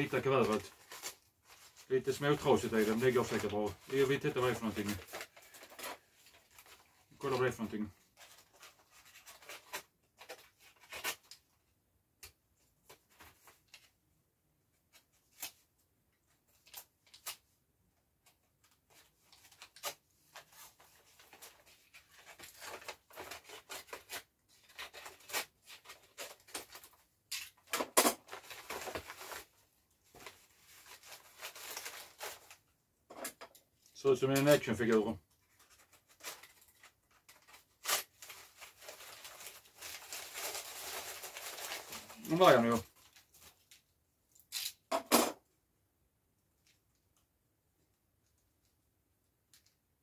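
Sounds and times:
paper rustling: 0:00.0 - 0:11.4, 0:18.9 - 0:32.6, 0:34.4 - 0:43.8
paper envelope tearing: 0:37.4 - 0:42.8.

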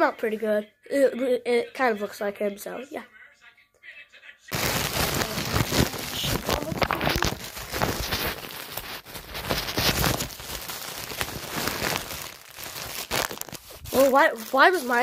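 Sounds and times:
phone rustling and crackling: 0:04.5 - 0:15.0
fabric brushing microphone: 0:04.6 - 0:10.4, 0:11.0 - 0:15.0.

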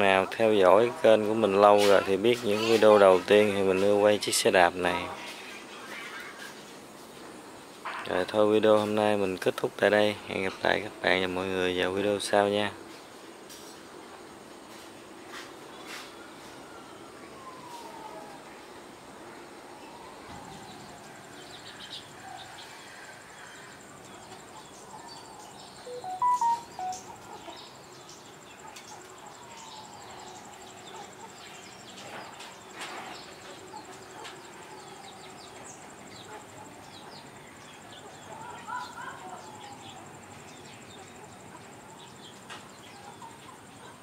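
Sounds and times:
birds calling: 0:20.6 - 0:44.0
bird chirps: 0:24.2 - 0:29.0
faint high-pitched hum: 0:25.8 - 0:27.4.

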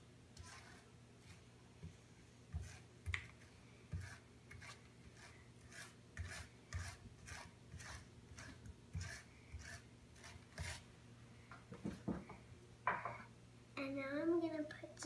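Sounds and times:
knife scraping across crepe: 0:00.4 - 0:01.4, 0:02.5 - 0:02.9, 0:03.9 - 0:10.8
knife knocking on wooden board: 0:11.7 - 0:13.2.

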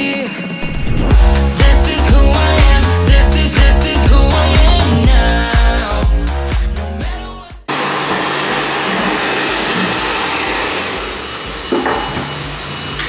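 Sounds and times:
background pop music: 0:00.0 - 0:07.8
hair dryer blowing: 0:07.7 - 0:13.0.

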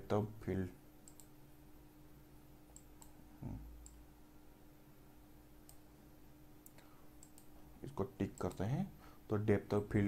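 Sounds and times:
faint steady hum: 0:00.0 - 0:10.0
computer mouse clicks: 0:01.0 - 0:01.3, 0:02.7 - 0:03.2, 0:03.8 - 0:04.0, 0:05.6 - 0:05.8, 0:06.6 - 0:07.5.

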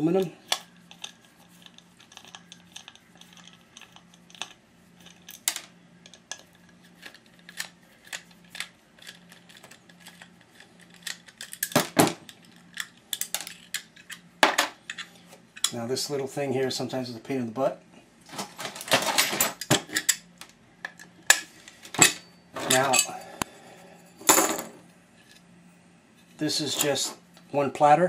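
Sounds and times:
small metal parts clicking: 0:00.5 - 0:14.3.

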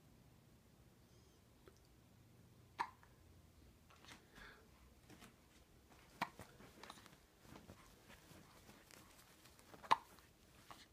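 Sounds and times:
baby hiccuping: 0:02.8 - 0:03.0, 0:09.8 - 0:10.1.

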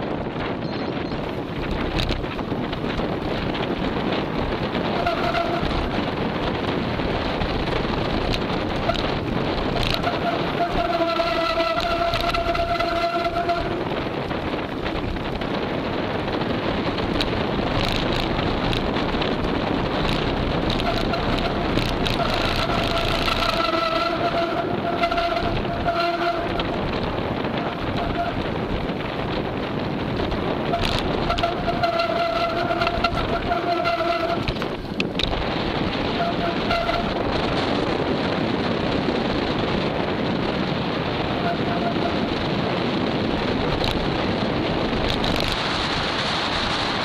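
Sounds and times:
steady whine: 0:00.0 - 0:38.1
mountain bike rattling on dirt: 0:00.0 - 0:47.0
wind buffeting microphone: 0:00.0 - 0:47.0
thin steady squeal: 0:03.5 - 0:06.0, 0:08.7 - 0:15.2, 0:20.1 - 0:28.7, 0:30.6 - 0:34.6, 0:36.1 - 0:37.4, 0:41.4 - 0:42.3.

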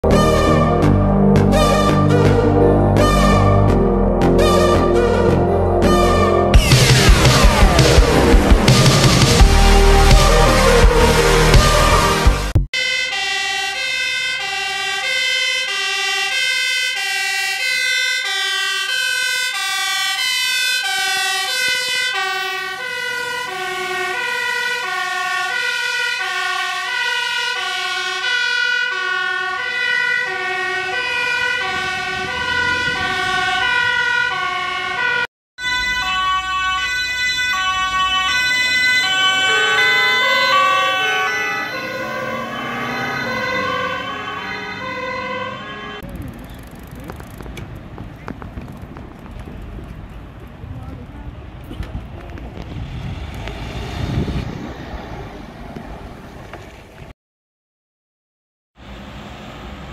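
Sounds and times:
fire engine two-tone siren: 0:00.0 - 0:46.9.

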